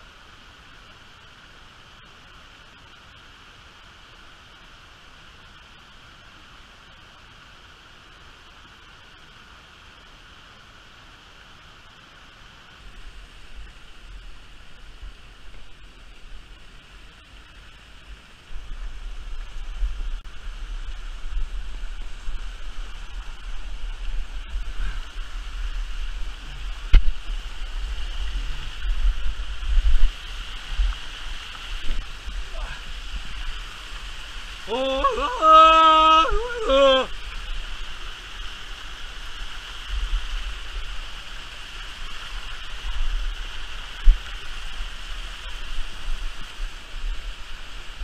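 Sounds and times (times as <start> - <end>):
river water rushing: 0.0 - 48.0
deep rumble on microphone: 18.4 - 34.7.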